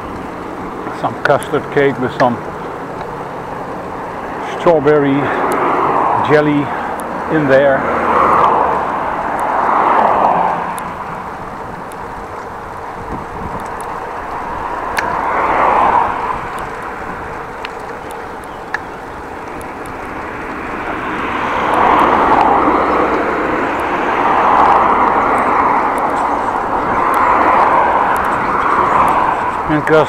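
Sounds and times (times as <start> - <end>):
steady road noise: 0.0 - 30.0
vehicles passing close by: 0.0 - 30.0.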